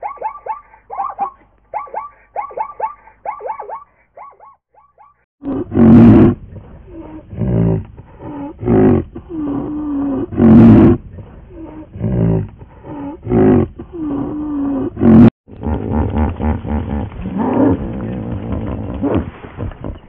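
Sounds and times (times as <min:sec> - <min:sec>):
animal calling loudly: 0:00.0 - 0:06.3.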